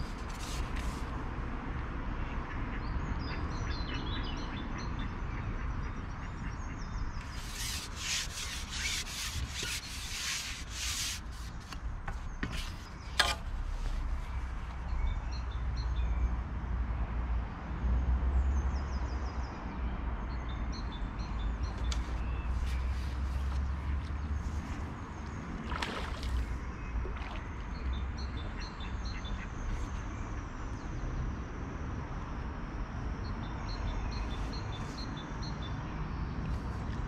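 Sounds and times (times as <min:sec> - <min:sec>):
rough rubbing and scraping: 0:00.0 - 0:01.2, 0:07.2 - 0:14.6
songbirds singing: 0:18.5 - 0:31.4, 0:33.0 - 0:37.0.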